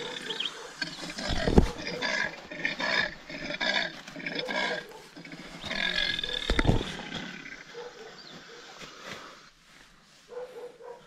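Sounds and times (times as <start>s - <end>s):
animal harsh calls: 0.0s - 8.8s.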